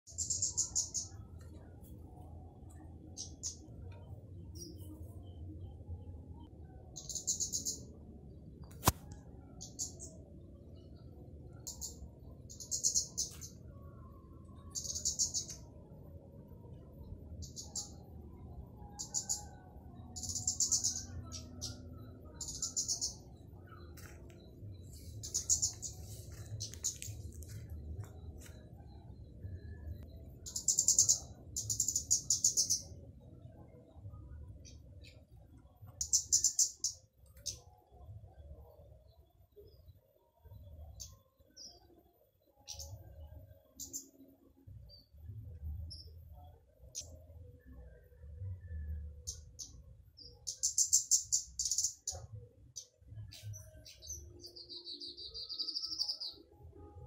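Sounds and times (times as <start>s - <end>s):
bird trilling high ticking notes: 20.1s - 27.6s.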